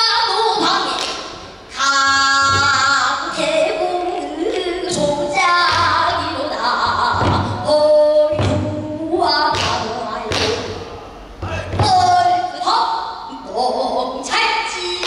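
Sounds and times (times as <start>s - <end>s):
low thumps: 4.9s - 12.3s.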